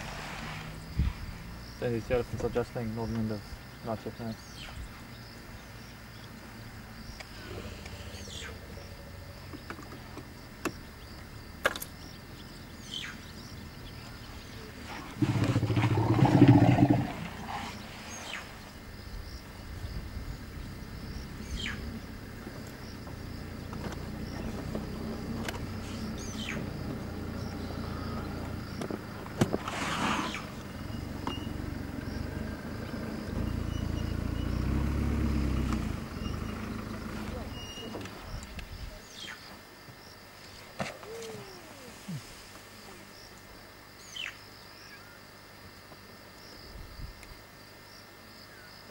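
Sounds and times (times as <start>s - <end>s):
vehicle engine idling: 20.3s - 38.9s
descending whistled bird calls: 36.1s - 39.5s.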